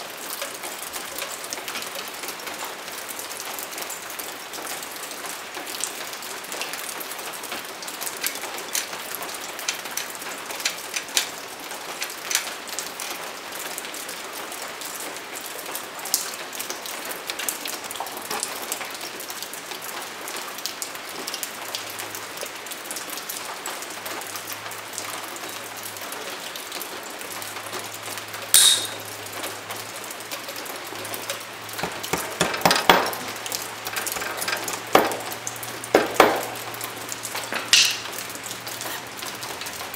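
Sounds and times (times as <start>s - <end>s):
metallic clicks and taps: 28.6s - 29.0s, 31.8s - 35.3s, 37.5s - 38.1s
clicks and taps from hand work: 31.8s - 35.3s, 35.9s - 36.6s, 37.5s - 38.1s.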